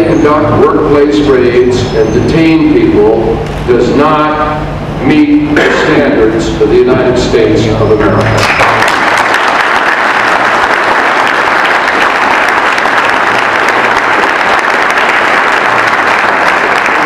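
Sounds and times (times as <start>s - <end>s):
audience applauding: 8.2s - 17.0s.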